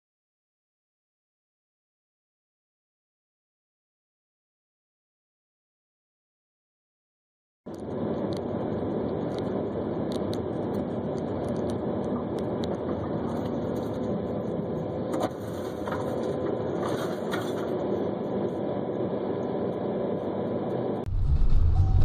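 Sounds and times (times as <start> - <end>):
car road and engine noise: 7.7 - 22.0.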